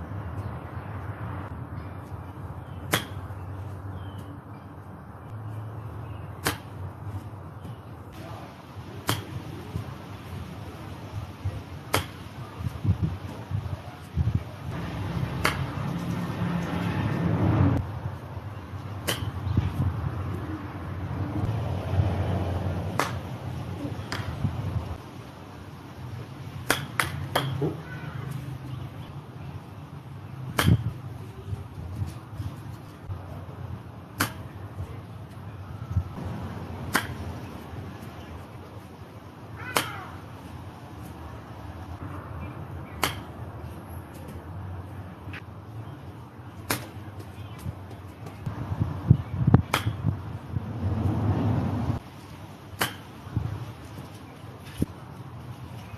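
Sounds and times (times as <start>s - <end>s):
golf club striking balls: 2.6s - 3.4s, 6.4s - 6.8s, 7.6s - 9.9s, 11.8s - 12.6s, 14.7s - 16.7s, 19.0s - 19.8s, 22.9s - 24.5s, 26.6s - 27.8s, 30.5s - 31.0s, 34.2s - 34.6s, 36.2s - 37.6s, 42.8s - 43.4s, 49.6s - 50.2s, 52.8s - 53.2s
golf club striking ball: 2.9s - 3.3s, 9.0s - 9.4s, 11.9s - 12.2s, 14.8s - 16.0s, 19.0s - 19.5s, 22.9s - 23.3s, 26.7s - 27.8s, 36.9s - 37.2s, 43.0s - 43.4s, 49.6s - 50.0s, 52.8s - 53.1s.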